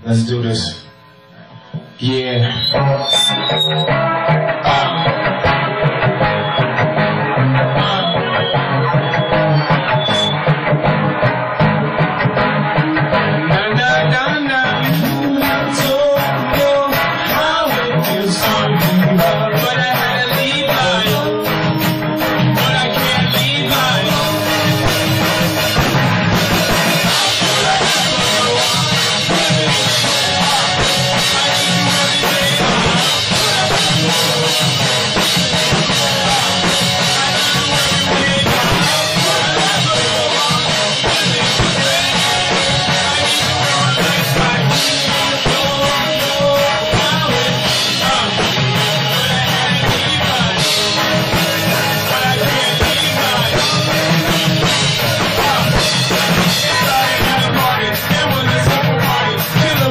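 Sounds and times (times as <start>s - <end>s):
drum kit: 0.0s - 59.9s
electric guitars: 0.0s - 59.9s
person singing into microphone: 1.8s - 10.5s, 12.8s - 59.9s.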